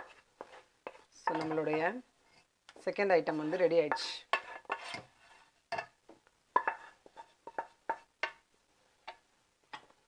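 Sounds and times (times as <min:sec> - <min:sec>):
spatula scraping frying pan: 0:00.0 - 0:02.5, 0:03.2 - 0:05.8, 0:06.5 - 0:08.1.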